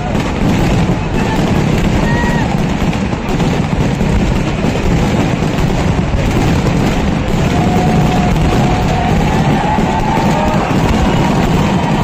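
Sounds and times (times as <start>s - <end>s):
firecrackers bursting: 0.0s - 12.0s.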